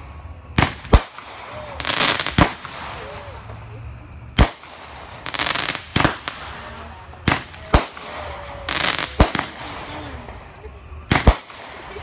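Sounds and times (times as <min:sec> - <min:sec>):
fireworks crackling: 0:00.0 - 0:12.0
firework shells bursting: 0:04.4 - 0:10.5, 0:11.1 - 0:12.0.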